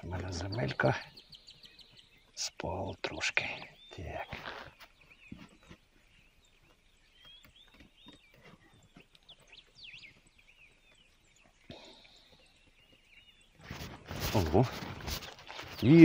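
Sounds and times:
small birds chirping: 0:00.0 - 0:16.0
brief rustle: 0:13.6 - 0:16.0.

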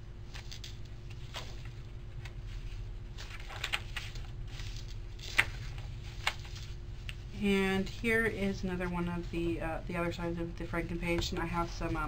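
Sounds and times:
low steady hum: 0:00.0 - 0:12.0
paper pages rustling: 0:00.2 - 0:06.8.

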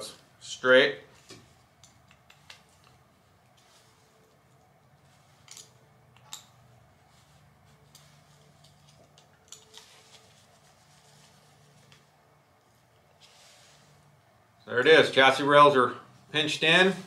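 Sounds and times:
faint sharp clicks of metal parts: 0:01.2 - 0:03.7, 0:05.3 - 0:06.7, 0:07.8 - 0:10.3.

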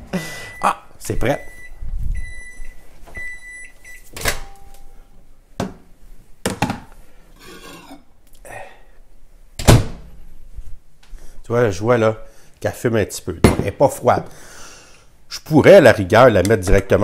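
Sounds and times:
microwave beeping: 0:00.4 - 0:05.0.

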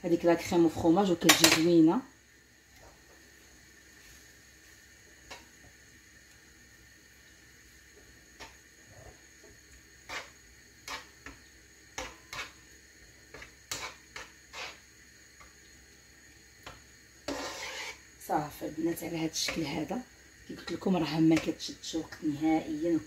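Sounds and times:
spoon scraping a frying pan: 0:10.0 - 0:12.7, 0:13.3 - 0:15.5, 0:16.6 - 0:18.2.

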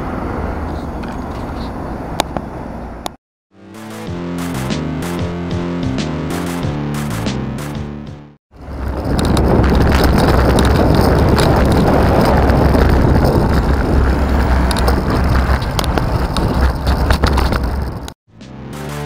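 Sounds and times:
cars on road: 0:00.0 - 0:03.2, 0:08.5 - 0:18.2
strummed guitar music: 0:03.6 - 0:08.2
heavy low rumble: 0:08.5 - 0:18.2
wind noise on microphone: 0:08.5 - 0:18.2.

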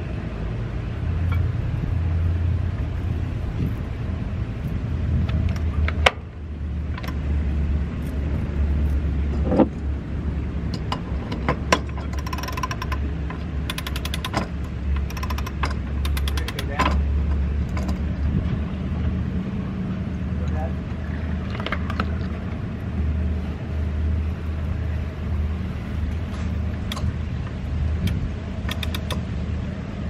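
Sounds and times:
steady low hum: 0:00.0 - 0:30.0
winch clicking: 0:11.7 - 0:18.0, 0:26.0 - 0:29.3.

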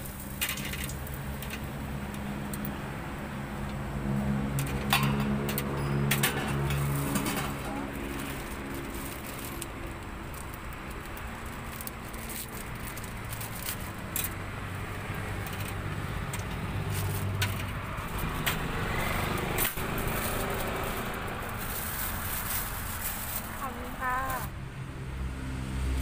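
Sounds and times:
plastic bag rustling: 0:06.5 - 0:14.3, 0:16.7 - 0:24.5.

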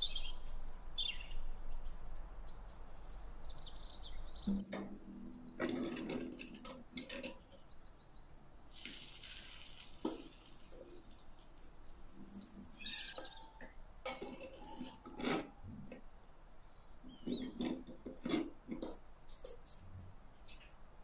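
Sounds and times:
soft hiss: 0:08.6 - 0:13.1
metal spatula scraping small pan: 0:14.1 - 0:15.6.

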